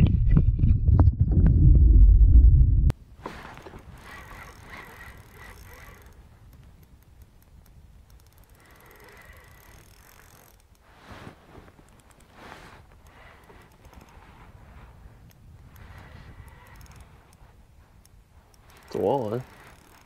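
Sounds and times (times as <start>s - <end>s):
fishing reel gears whirring: 3.8s - 10.8s, 15.7s - 17.4s, 18.5s - 20.0s.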